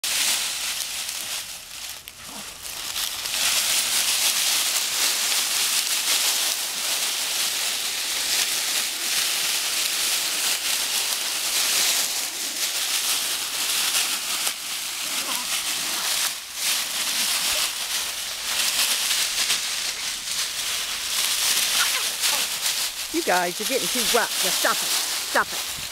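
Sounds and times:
dry leaves rustling and crackling: 0.0s - 25.9s.

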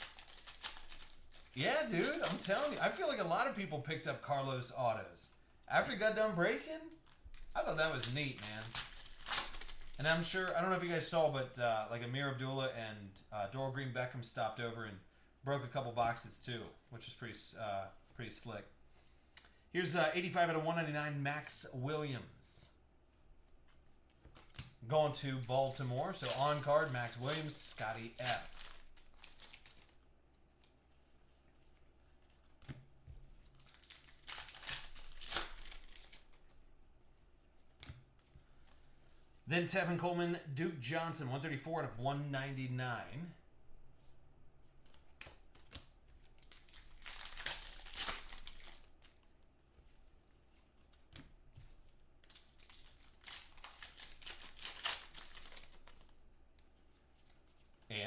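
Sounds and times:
foil wrapper tearing and crinkling: 0.0s - 3.2s, 7.0s - 10.0s, 25.4s - 30.0s, 33.5s - 36.3s, 46.4s - 48.9s, 52.2s - 56.1s.

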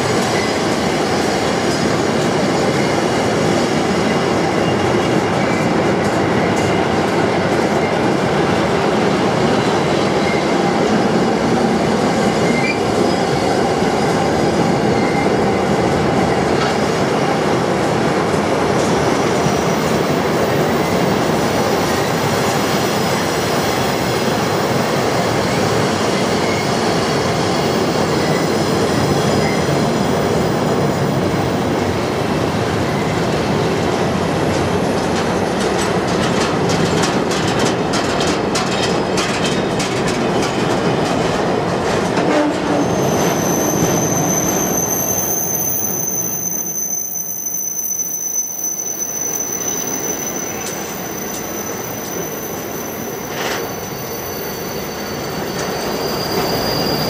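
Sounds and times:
freight wagons rumbling on rails: 32.4s - 45.4s.

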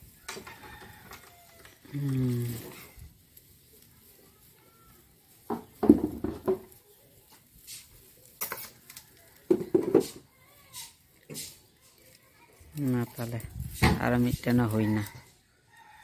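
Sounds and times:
dry grass broom rustling: 0.0s - 16.0s.

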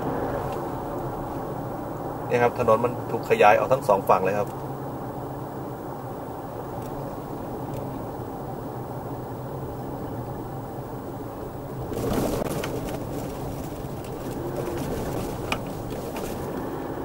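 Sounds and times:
oncoming vehicle passing: 0.0s - 2.3s, 11.4s - 17.0s
car engine and tyre noise: 0.0s - 17.0s.

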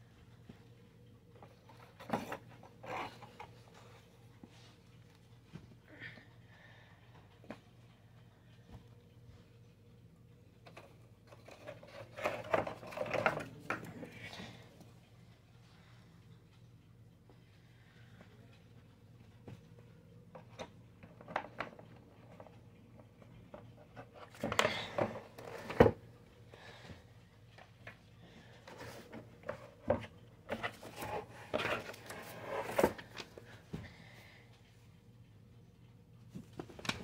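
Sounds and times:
cardboard and paper rustling: 11.4s - 14.1s, 28.7s - 33.4s.

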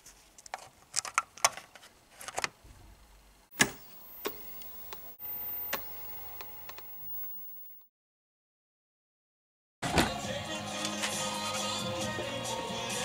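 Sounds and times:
sharp click: 3.5s - 5.0s.

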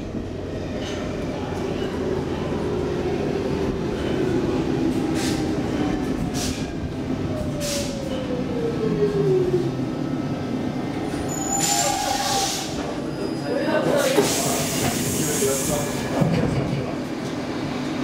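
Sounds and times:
train running rumble: 0.0s - 13.2s.

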